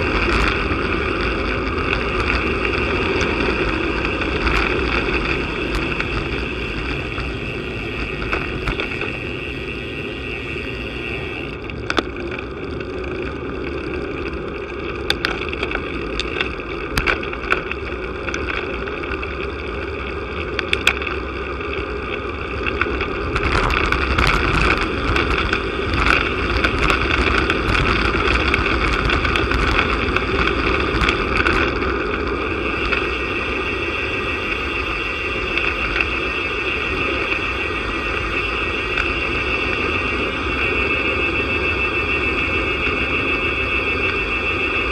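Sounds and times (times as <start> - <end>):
bicycle knocks and rattles: 0.0 - 33.7
tyre rumble on asphalt: 0.0 - 37.2
wind rushing over microphone: 0.0 - 44.9.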